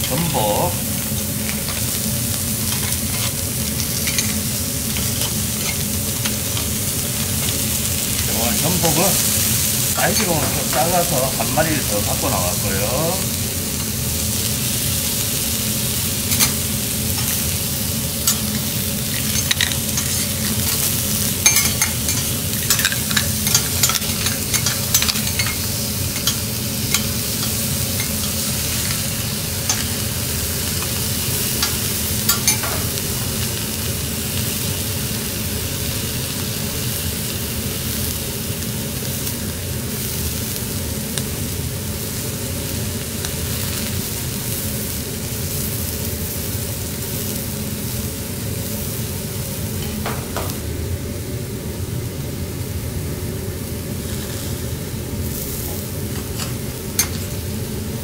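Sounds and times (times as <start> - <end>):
seafood sizzling on a griddle: 0.0 - 58.0
utensils clicking on metal plate: 2.7 - 7.6, 18.2 - 30.0, 31.6 - 32.9, 56.2 - 57.3.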